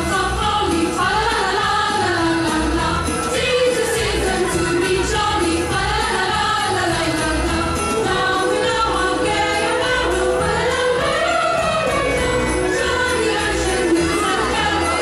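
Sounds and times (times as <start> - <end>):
choir singing over a beat: 0.0 - 15.0.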